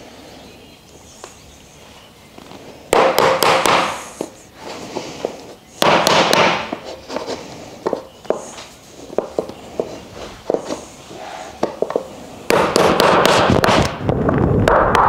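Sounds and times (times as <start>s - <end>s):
hammer knocking wood: 2.9s - 4.3s, 5.8s - 6.8s.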